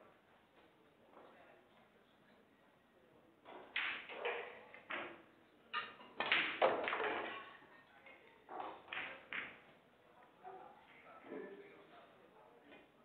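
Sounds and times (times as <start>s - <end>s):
pool balls clacking: 3.4s - 7.7s, 8.5s - 9.7s.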